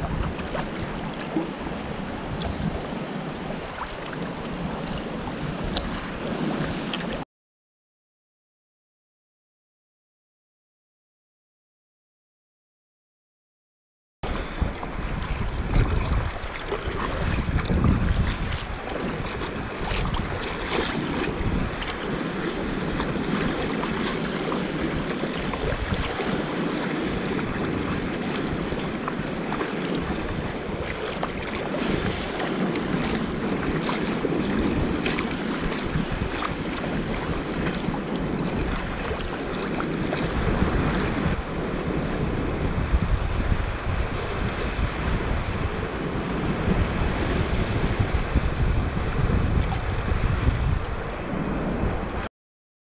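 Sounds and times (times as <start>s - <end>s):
water sloshing around kayak: 0.0s - 7.2s, 14.3s - 41.5s
wind buffeting microphone: 0.0s - 7.2s, 14.2s - 52.3s.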